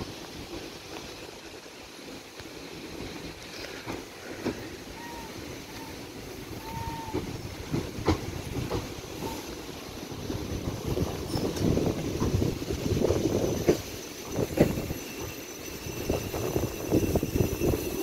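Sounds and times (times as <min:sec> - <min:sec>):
electric train slowing: 0:00.0 - 0:18.0
train wheels clicking: 0:00.0 - 0:18.0
faint wheel squeals: 0:03.5 - 0:07.7.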